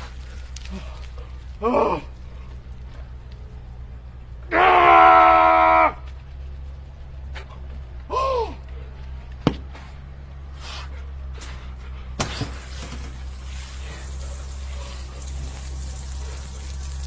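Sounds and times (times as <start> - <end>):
falling groan: 0.0 - 3.1, 4.4 - 6.1
low hum: 0.0 - 17.0
shower water spraying: 12.2 - 17.0.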